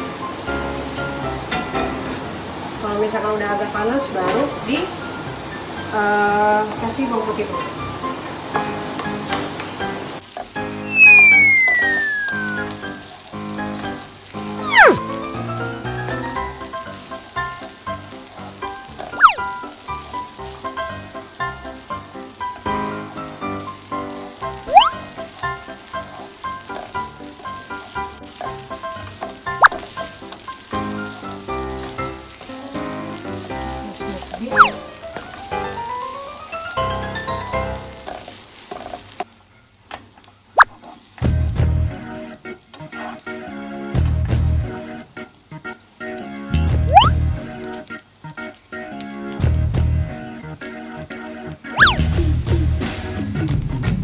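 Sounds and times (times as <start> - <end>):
background music with melody: 4.4 - 38.3, 41.2 - 54.0
garlic sizzling in oil: 9.8 - 39.3, 40.4 - 42.2, 44.0 - 44.8, 46.6 - 48.5, 51.7 - 54.0
falling-pitch sound effects: 10.8 - 13.0, 14.6 - 15.0, 19.2 - 19.5, 24.7 - 25.0, 34.5 - 34.8, 46.9 - 47.2, 51.8 - 52.1.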